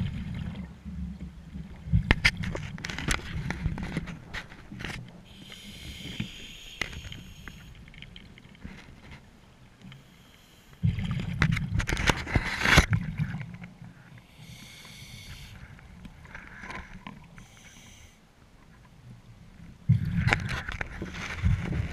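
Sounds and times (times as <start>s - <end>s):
regulator inhaling hiss: 5.3s - 7.8s, 9.9s - 10.8s, 14.2s - 15.7s, 17.4s - 18.2s
exhaled bubbles burbling underwater: 10.8s - 11.8s.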